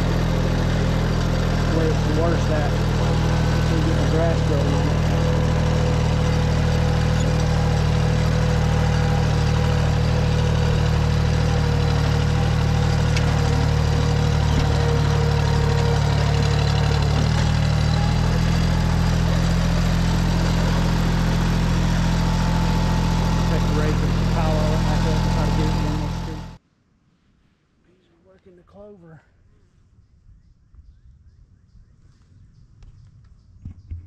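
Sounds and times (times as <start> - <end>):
diesel tractor engine running: 0.0 - 26.6.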